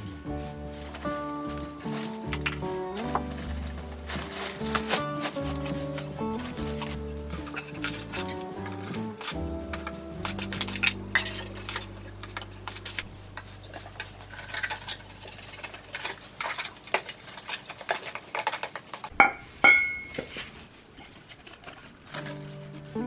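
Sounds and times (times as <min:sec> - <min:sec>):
metal pipe clanking on concrete: 0:19.2 - 0:20.2.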